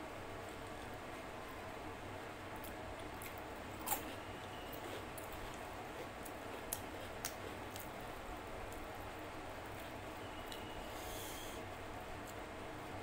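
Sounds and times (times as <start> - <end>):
chewing and mouth clicks: 2.6 - 9.0
low hiss: 10.3 - 12.6.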